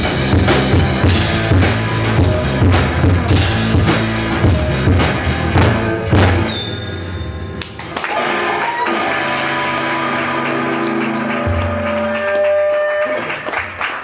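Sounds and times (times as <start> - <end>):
deep bass note: 0.0 - 6.5
drum and cymbal hit: 0.0 - 6.6
electric guitar chords: 0.0 - 13.4.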